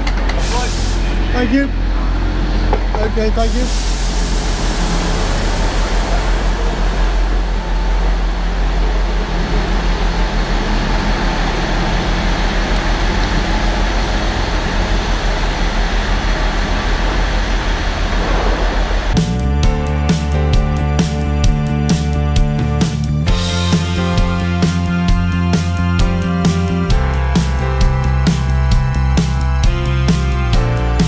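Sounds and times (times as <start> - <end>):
diesel train engines idling: 0.0 - 31.0.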